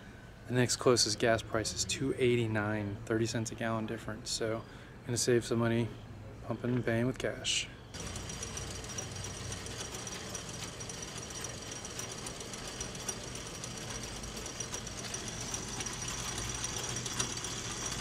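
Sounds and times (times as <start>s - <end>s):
counter clicking: 8.0s - 18.0s
fuel pump motor hum: 8.0s - 18.0s.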